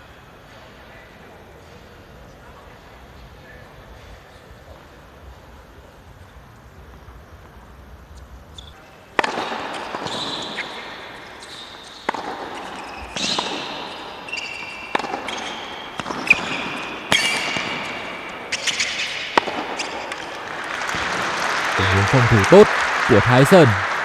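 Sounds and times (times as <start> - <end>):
sneaker squeaks on court: 9.7 - 20.2
tennis ball bouncing: 11.9 - 17.8, 18.6 - 20.4.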